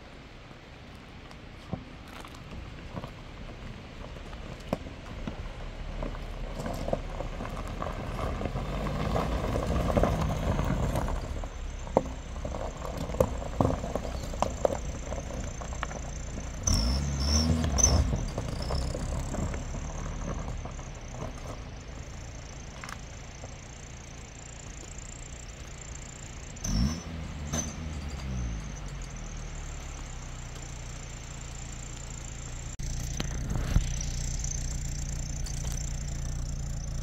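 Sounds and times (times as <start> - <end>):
car engine on gravel: 0.0 - 37.0
stones popping under tyres: 0.8 - 37.0
engine revving: 16.3 - 21.4, 26.5 - 37.0.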